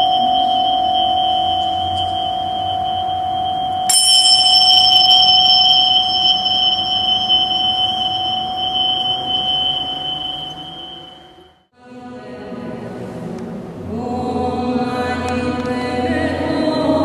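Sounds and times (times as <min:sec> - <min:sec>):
singing bowl hum: 0:00.0 - 0:11.6
small cymbals ringing: 0:00.0 - 0:11.6.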